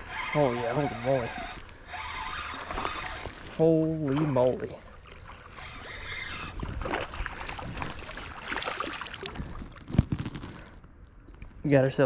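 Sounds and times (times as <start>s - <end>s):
water splashing and sloshing: 0.0s - 11.0s.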